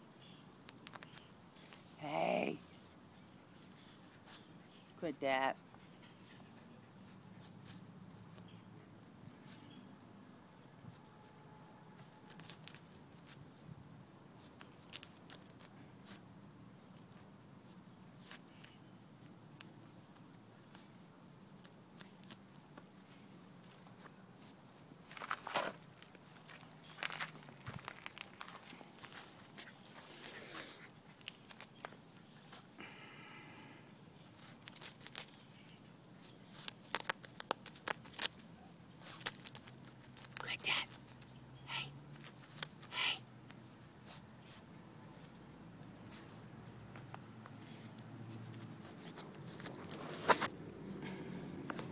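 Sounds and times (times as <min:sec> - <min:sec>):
dog digging in sand: 0:34.2 - 0:40.4.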